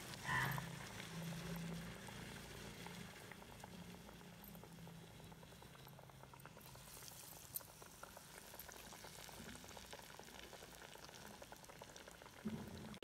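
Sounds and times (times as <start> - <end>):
oil sizzling and crackling: 0.0 - 13.0.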